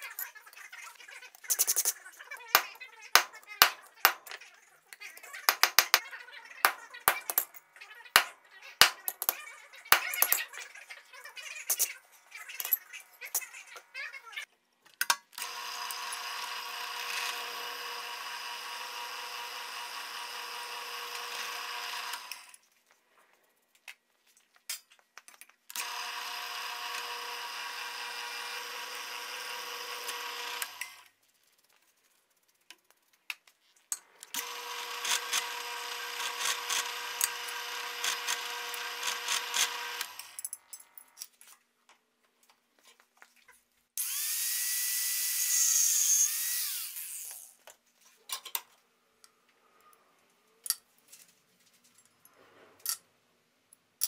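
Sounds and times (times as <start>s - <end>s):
drill press running: 15.4s - 22.5s, 25.7s - 31.0s, 34.2s - 40.4s.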